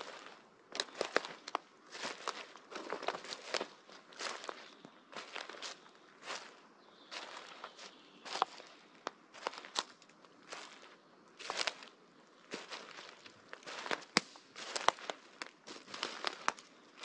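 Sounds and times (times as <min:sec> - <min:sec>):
footsteps crunching on leaves: 0:00.0 - 0:17.0
branches snapping: 0:13.6 - 0:16.7.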